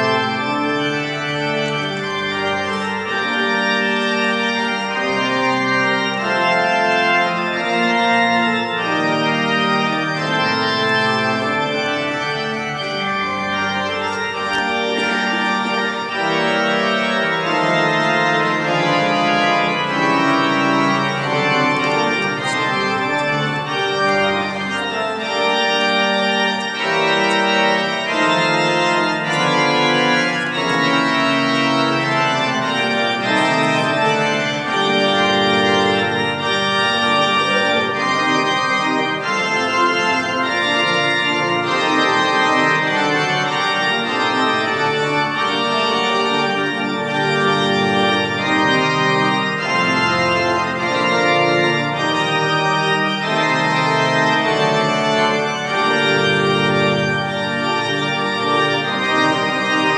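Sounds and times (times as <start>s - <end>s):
pipe organ chords: 0.0s - 59.9s.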